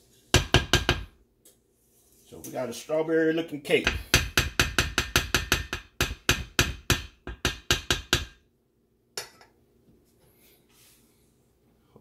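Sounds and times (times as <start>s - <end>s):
spatula knocking metal bowl: 0.4s - 1.1s, 3.8s - 8.4s.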